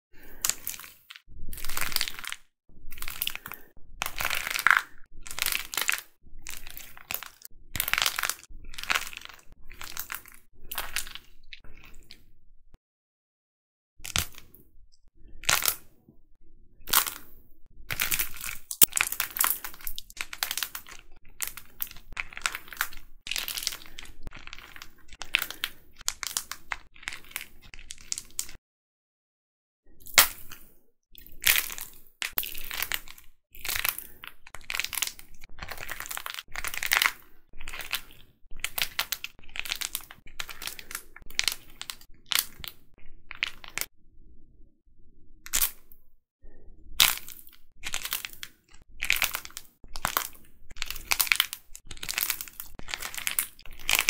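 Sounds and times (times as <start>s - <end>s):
plaster figures cracking and crunching: 0.2s - 11.9s, 17.9s - 28.6s, 31.3s - 43.9s, 47.0s - 54.0s.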